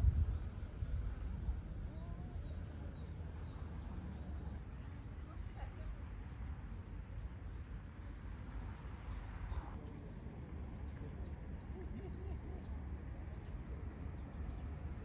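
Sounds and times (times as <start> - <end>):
steady low rumble: 0.0 - 4.6
faint distant voices: 0.0 - 15.0.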